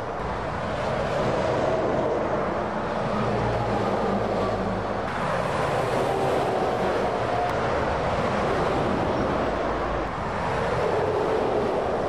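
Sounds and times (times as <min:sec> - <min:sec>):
lorries passing at speed: 0:00.0 - 0:12.0.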